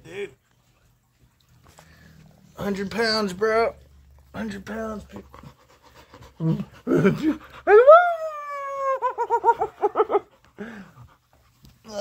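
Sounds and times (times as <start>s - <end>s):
dog howling and yelping: 7.0s - 10.1s.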